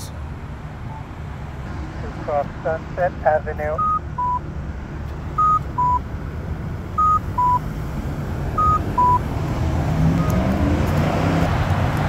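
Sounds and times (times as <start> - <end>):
low traffic noise: 0.0 - 12.0
two-note electronic beep: 5.4 - 6.0, 7.0 - 7.6.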